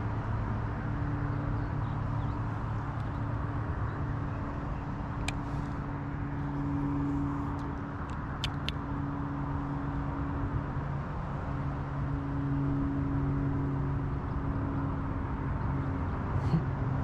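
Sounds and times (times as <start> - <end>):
low motor hum: 0.0 - 17.0
faint sharp clicks: 7.6 - 8.8.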